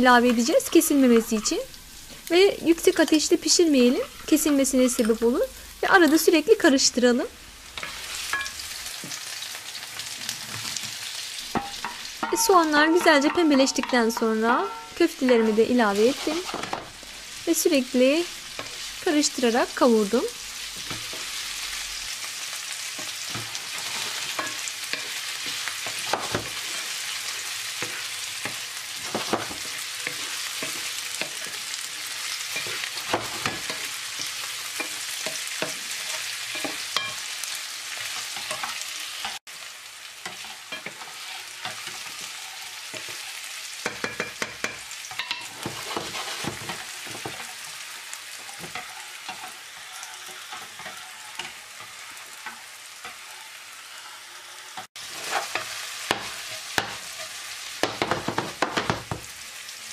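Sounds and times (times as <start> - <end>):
meatballs sizzling in oil: 0.0 - 59.9
wooden spoon knocking on pan: 43.8 - 47.4, 57.8 - 59.3.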